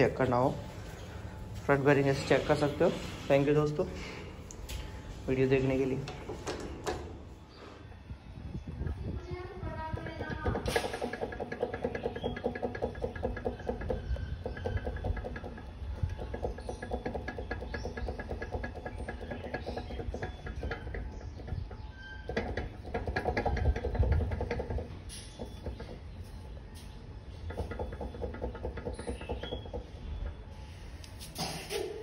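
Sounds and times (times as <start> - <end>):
motorcycle bearing clicking and grating: 10.0 - 31.2.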